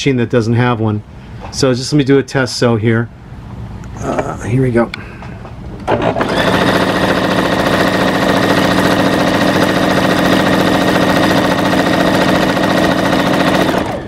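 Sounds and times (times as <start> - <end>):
sewing machine stitching: 5.9 - 14.0.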